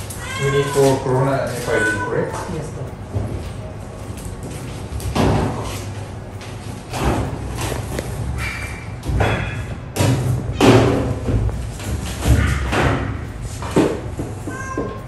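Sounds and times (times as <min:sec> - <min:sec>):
cat crying in distress: 0:00.1 - 0:02.7, 0:14.4 - 0:15.0.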